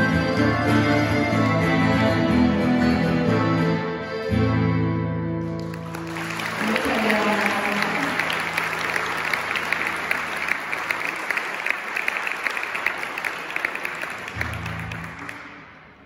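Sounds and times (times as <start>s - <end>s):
audience applause: 5.6s - 16.0s.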